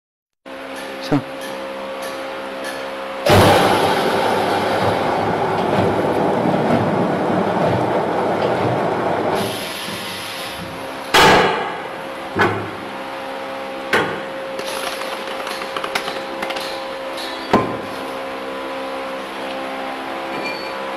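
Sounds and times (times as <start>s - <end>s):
steady motor hum: 0.5s - 20.3s
loud sharp knock: 3.3s - 6.1s, 11.2s - 12.8s.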